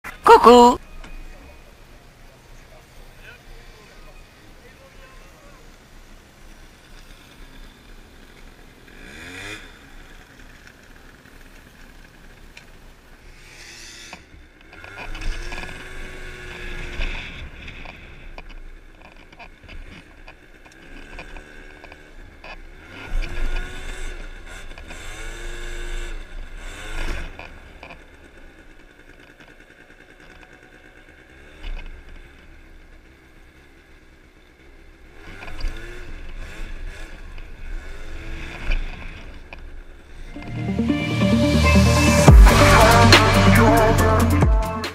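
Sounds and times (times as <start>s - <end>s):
scooter engine revving: 6.6s - 12.5s.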